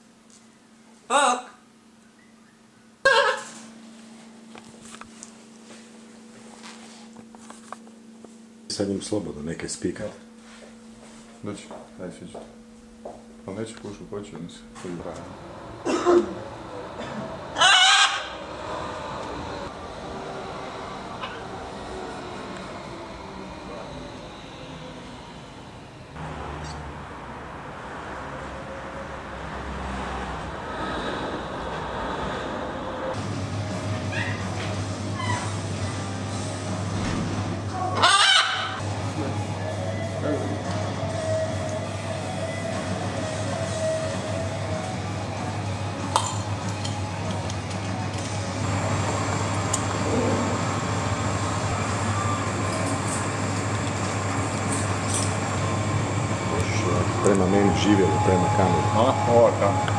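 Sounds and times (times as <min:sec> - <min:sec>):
low hum: 0:03.6 - 0:59.9
street traffic rumble: 0:12.4 - 0:59.9.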